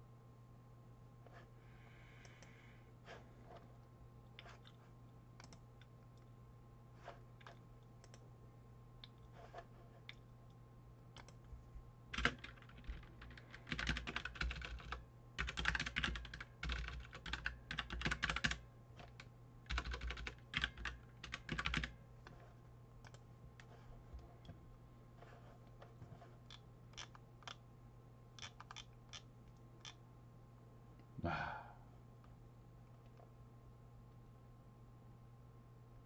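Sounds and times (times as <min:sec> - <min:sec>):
steady low hum: 0:00.0 - 0:36.0
typing on computer keyboard: 0:05.4 - 0:05.6, 0:12.1 - 0:22.0, 0:28.4 - 0:30.0.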